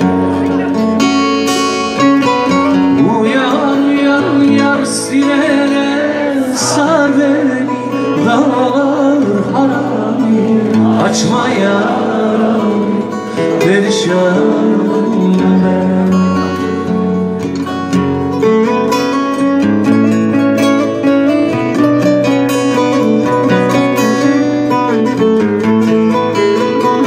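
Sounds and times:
man singing folk song: 0:00.0 - 0:18.4
acoustic guitar: 0:00.0 - 0:27.0.

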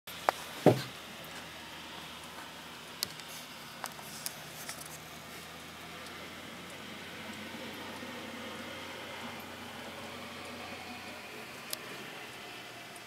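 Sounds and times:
heavy thump: 0:00.6 - 0:00.9.

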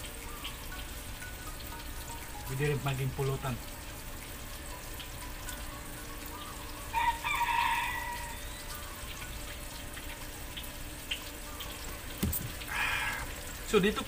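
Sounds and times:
rooster crowing: 0:06.9 - 0:08.4, 0:12.7 - 0:13.4.

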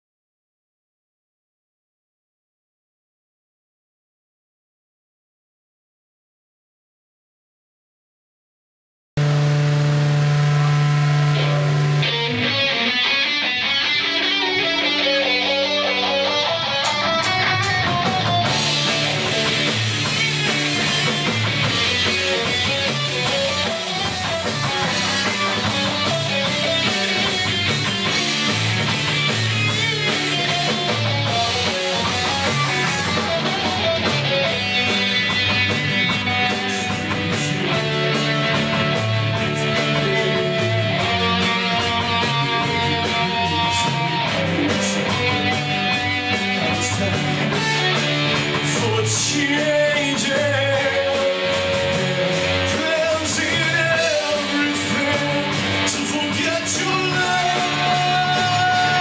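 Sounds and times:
bass guitar: 0:09.2 - 0:59.0
electric guitar: 0:09.2 - 0:59.0
fast ticking beat: 0:16.8 - 0:59.0.

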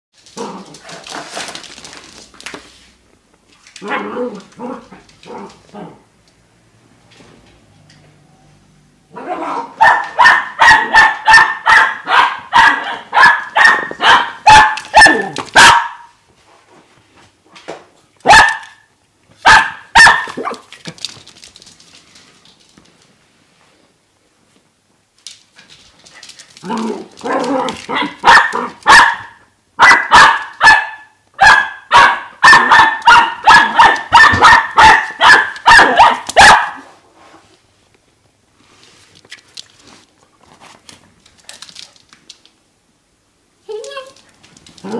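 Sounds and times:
puppy barking excitedly: 0:09.1 - 0:16.2, 0:18.2 - 0:20.7, 0:26.6 - 0:36.9.

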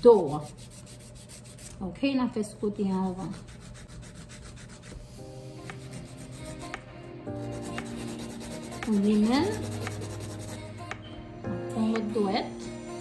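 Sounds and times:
nail file rasping: 0:00.1 - 0:01.8, 0:03.2 - 0:06.8, 0:07.4 - 0:10.7
background music with held notes: 0:05.1 - 0:13.0
person singing: 0:05.5 - 0:13.0.

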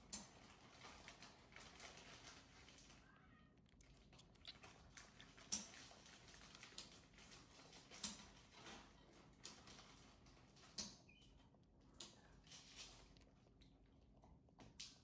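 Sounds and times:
squirrel suckling from syringe: 0:03.6 - 0:08.4.

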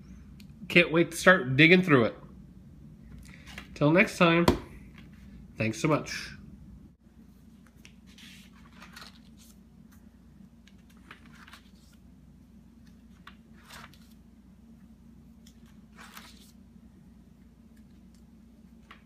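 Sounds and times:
faint low hum: 0:00.0 - 0:19.0
paper pages turning: 0:07.5 - 0:12.1, 0:12.8 - 0:14.2, 0:15.4 - 0:16.6.

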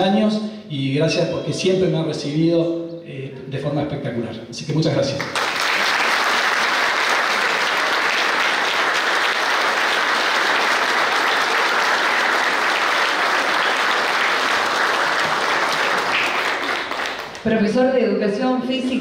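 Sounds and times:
crowd applauding: 0:05.2 - 0:17.5.

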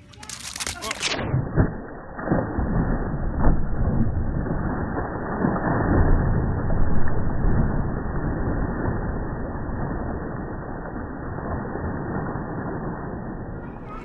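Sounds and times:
slowed water splash: 0:00.4 - 0:14.0.

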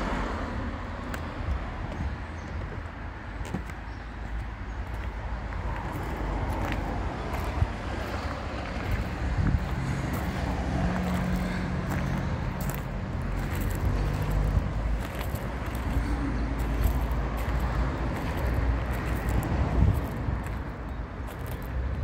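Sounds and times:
wind rumbling on microphone: 0:01.0 - 0:22.0
diesel engine idling: 0:04.1 - 0:19.2.

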